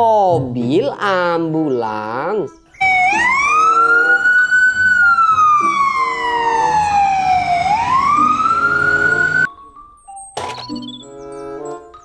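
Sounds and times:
ambulance siren wailing: 0:02.8 - 0:09.5.

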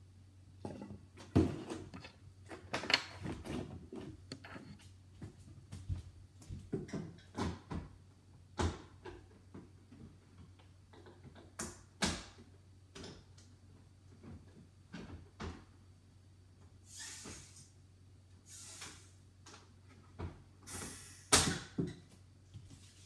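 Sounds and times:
short gas hiss: 0:16.8 - 0:17.7, 0:18.4 - 0:19.2, 0:20.7 - 0:21.4.

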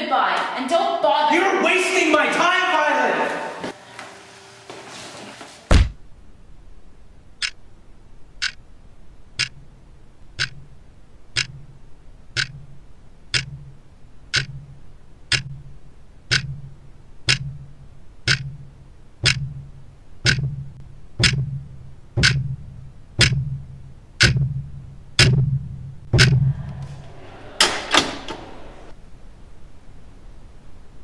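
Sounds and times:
body thudding on floor: 0:05.7 - 0:06.0
clock ticking with low thumps: 0:07.4 - 0:07.6, 0:08.3 - 0:08.7, 0:09.3 - 0:26.6.

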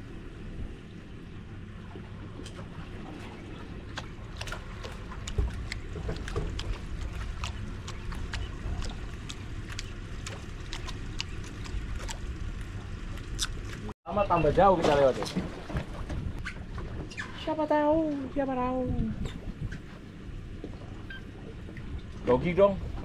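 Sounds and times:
wind and water against boat hull: 0:00.0 - 0:23.0.

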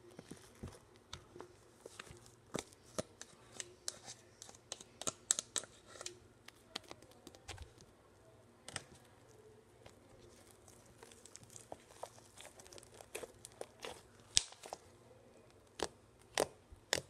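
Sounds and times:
slime squishing with sticky pops: 0:08.6 - 0:17.0.

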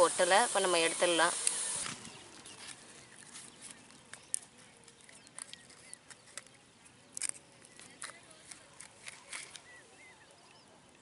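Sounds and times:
low hiss: 0:00.0 - 0:04.4
dry leaf crackling: 0:00.0 - 0:10.4.

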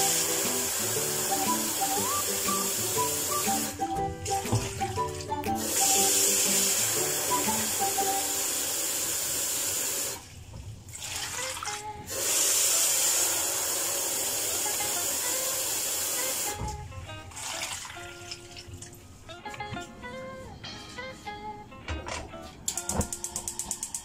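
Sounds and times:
tap running water into bowl: 0:00.0 - 0:08.4
background music: 0:00.0 - 0:08.8, 0:14.4 - 0:24.0.

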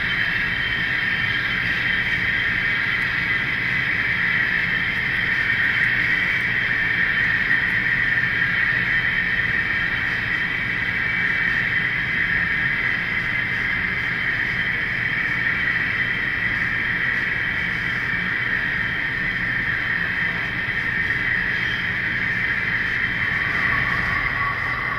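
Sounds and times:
model locomotives whining: 0:18.0 - 0:24.9.

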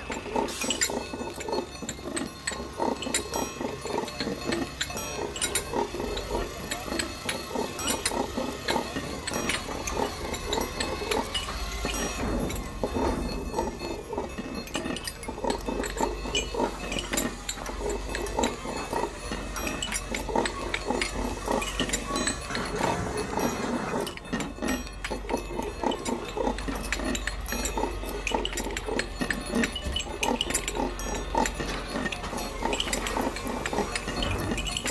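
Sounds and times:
crane engine grinding pulse: 0:00.0 - 0:34.9.

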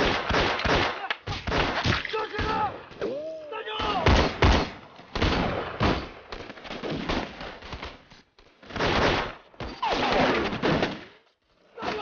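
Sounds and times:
rifle and pistol gunfire: 0:00.0 - 0:01.8.

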